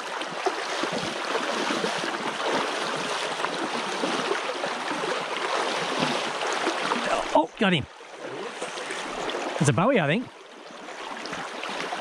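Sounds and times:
boots splashing through water: 0.0s - 7.4s
stream rushing over stones: 0.0s - 12.0s.

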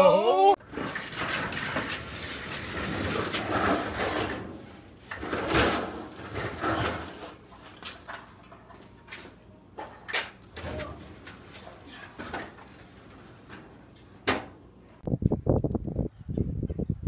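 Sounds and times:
grill scraping across floor: 0.7s - 8.1s.

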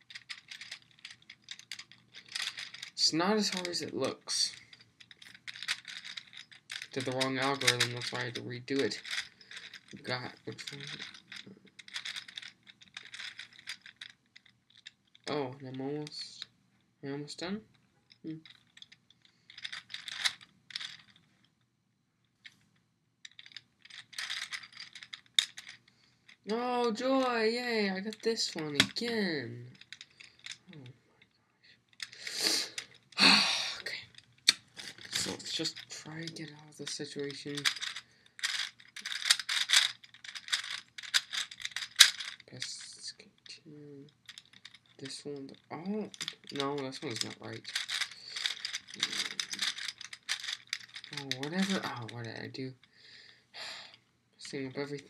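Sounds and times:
plastic puzzle gears clicking: 0.0s - 15.3s, 18.4s - 21.2s, 23.3s - 27.4s, 28.0s - 30.7s, 31.9s - 43.0s, 44.1s - 52.5s.

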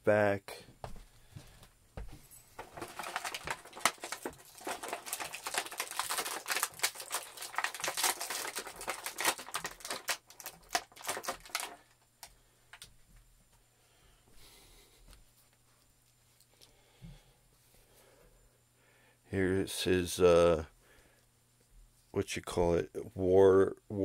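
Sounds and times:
plastic toy clicks and rustles: 2.7s - 11.8s.

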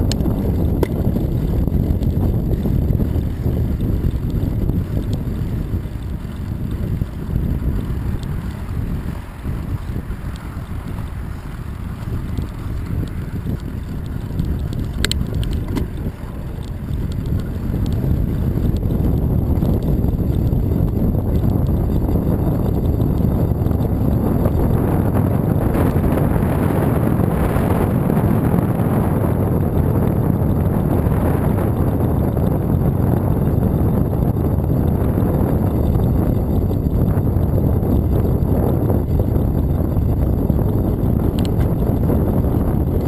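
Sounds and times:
bicycle tyres rolling on pavement: 0.0s - 43.0s
wind buffeting microphone: 0.0s - 43.0s.

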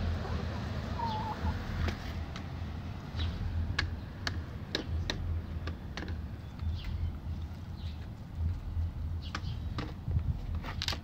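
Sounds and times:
low steady rumble: 0.0s - 10.6s
chickens pecking beak taps: 3.7s - 11.0s.

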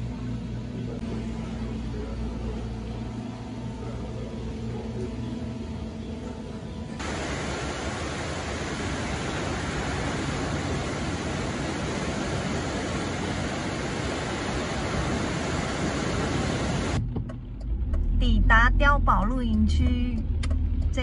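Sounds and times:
surf breaking on beach: 7.0s - 17.0s.

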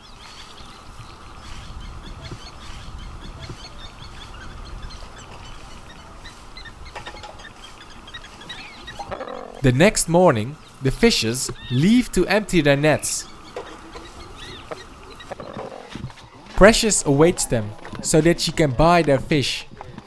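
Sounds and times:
high chirps and calls: 0.0s - 15.7s.

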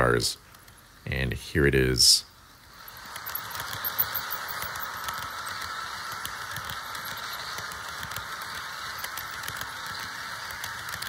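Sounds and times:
model train rolling hum: 0.0s - 11.0s
wheels clicking on rails: 2.6s - 11.0s.

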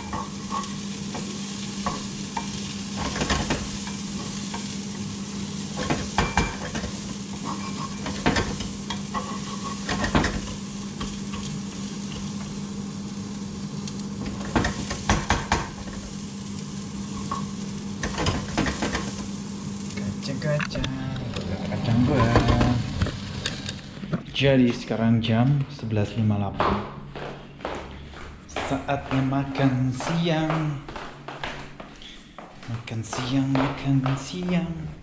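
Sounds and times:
peanuts sizzling in pan: 0.0s - 23.8s.

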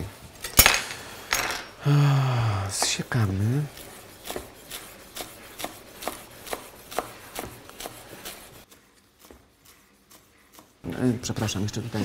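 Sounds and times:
knife chopping on wooden board: 3.8s - 8.6s.

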